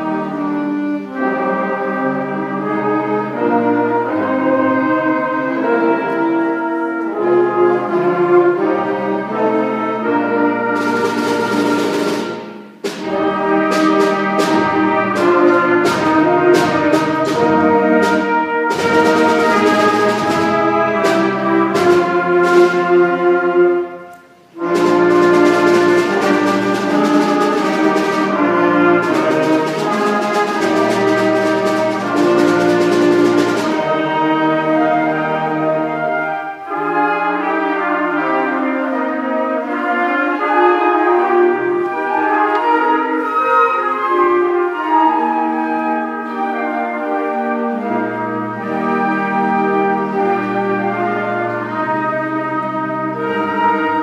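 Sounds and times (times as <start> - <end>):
concert band playing: 0.0 - 54.0
percussion strikes: 10.7 - 34.7.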